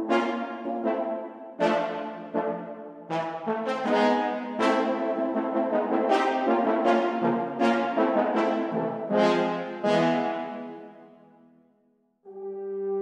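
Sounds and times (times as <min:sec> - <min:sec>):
brass section playing sustained chords: 0:00.0 - 0:11.1, 0:12.3 - 0:13.0.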